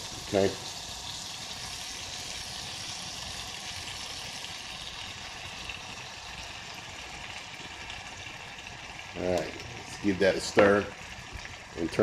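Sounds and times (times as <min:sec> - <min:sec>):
butter sizzling in a saucepan: 0:00.0 - 0:12.0.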